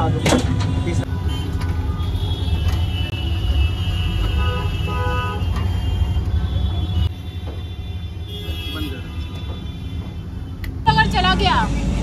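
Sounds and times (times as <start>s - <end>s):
low rumble of street traffic: 0.0s - 12.0s
vehicle horn toots: 1.2s - 10.1s.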